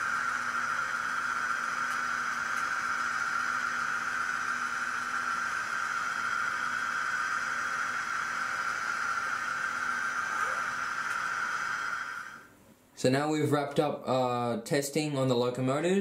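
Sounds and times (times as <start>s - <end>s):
model locomotive whine: 0.0s - 12.5s.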